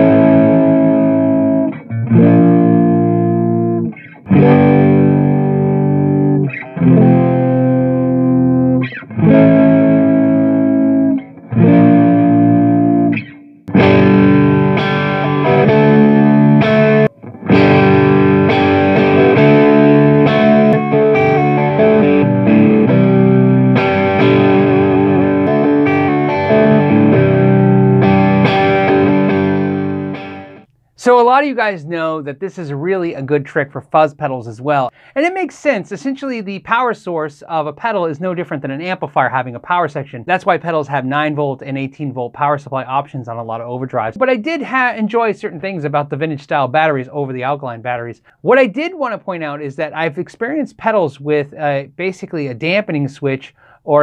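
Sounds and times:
distorted electric guitar: 0:00.0 - 0:30.7.

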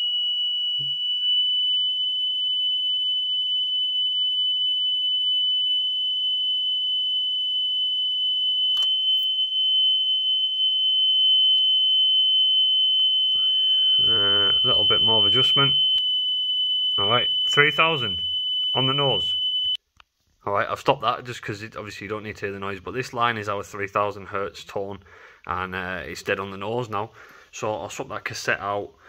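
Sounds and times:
steady calibration tone: 0:00.0 - 0:06.5, 0:08.5 - 0:10.0, 0:10.6 - 0:19.8.

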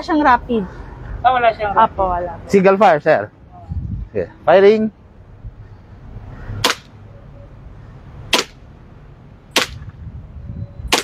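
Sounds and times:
airsoft pistol shots: 0:06.6 - 0:06.9, 0:08.3 - 0:08.6, 0:09.5 - 0:09.9.

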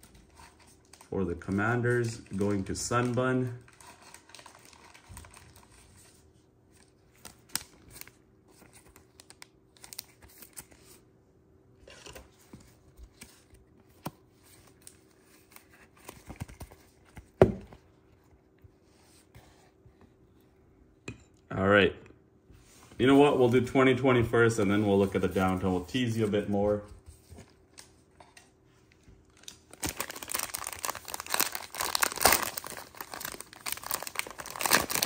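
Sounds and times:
plastic sleeve rustling and scraping: 0:22.6 - 0:28.5, 0:29.3 - 0:35.0.

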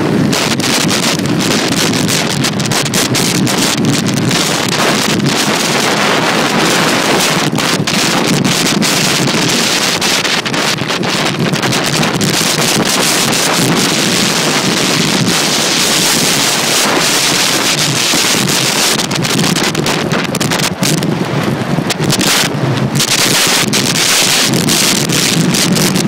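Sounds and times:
skate wheels rolling on asphalt: 0:00.0 - 0:26.0
wind buffeting microphone: 0:00.0 - 0:26.0.

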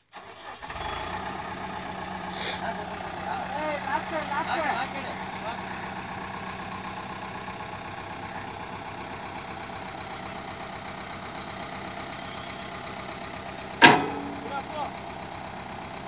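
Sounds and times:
diesel engine idling: 0:00.1 - 0:16.0
sharp bang: 0:13.8 - 0:14.5.

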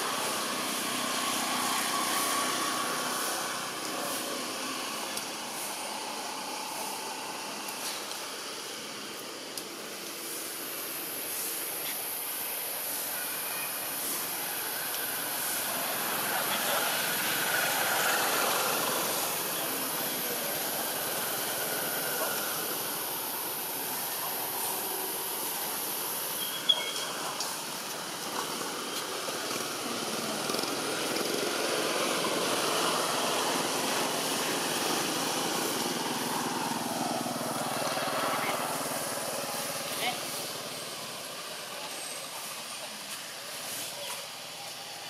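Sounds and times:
distant motor traffic hum: 0:00.0 - 0:45.0
faint voices: 0:00.0 - 0:45.0
high hiss: 0:00.0 - 0:45.0.

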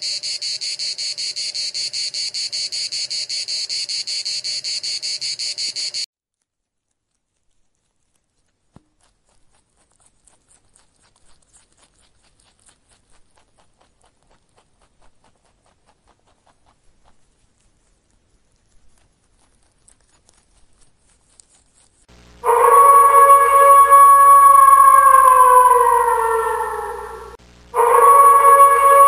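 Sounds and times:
rabbit chewing grass: 0:06.4 - 0:22.4.

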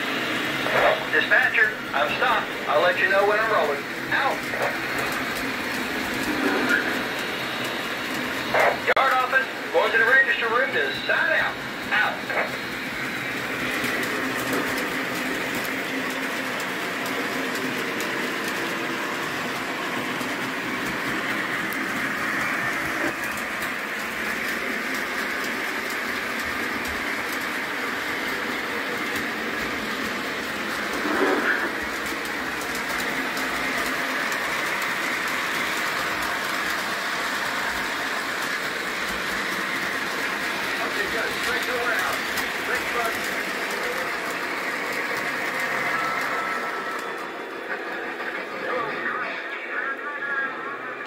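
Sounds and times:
model train motors whirring: 0:00.0 - 0:50.0.

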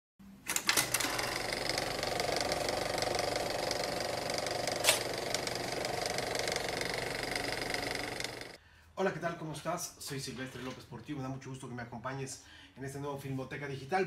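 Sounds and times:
rapid mechanical clatter: 0:00.5 - 0:08.6.

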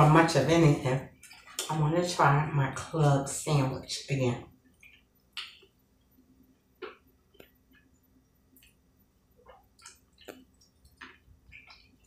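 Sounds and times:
chewing mouth clicks and smacks: 0:04.7 - 0:05.8, 0:06.8 - 0:08.8, 0:09.4 - 0:12.0.

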